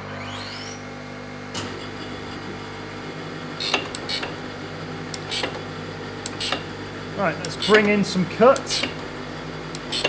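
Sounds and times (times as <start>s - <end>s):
surface grinder humming: 1.5s - 10.0s
sharp clicks: 3.6s - 4.4s, 5.1s - 5.6s, 6.2s - 6.7s, 7.4s - 9.0s, 9.7s - 10.0s.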